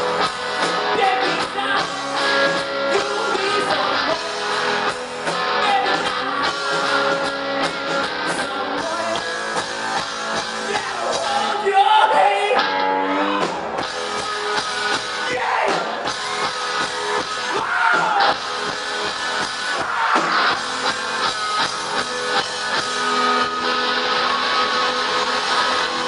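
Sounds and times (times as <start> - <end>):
drums: 0.0 - 26.0
electric guitars: 0.0 - 26.0
person singing: 0.2 - 9.7.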